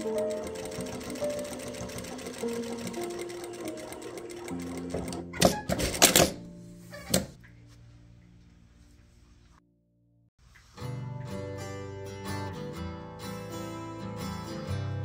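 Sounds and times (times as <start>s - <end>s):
sewing machine stitching: 0.0s - 6.4s.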